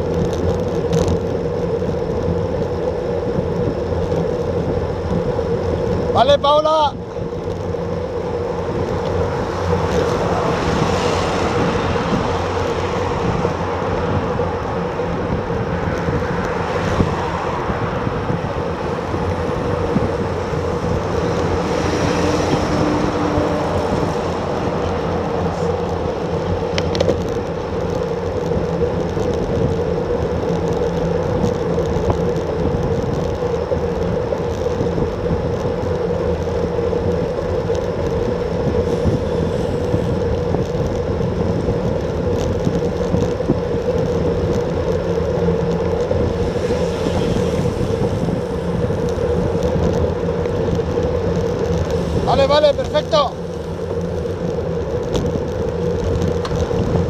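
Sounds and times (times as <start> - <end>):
bicycle tyre noise: 0.0 - 57.0
cars passing: 0.0 - 57.0
wind on camera microphone: 8.6 - 27.5, 38.0 - 57.0.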